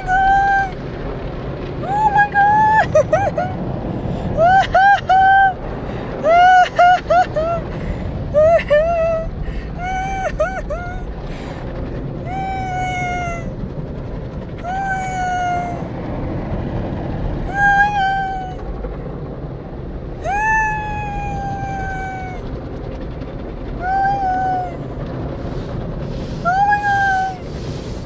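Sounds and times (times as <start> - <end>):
water spray and car wash machinery: 0.0 - 13.2, 21.3 - 28.0.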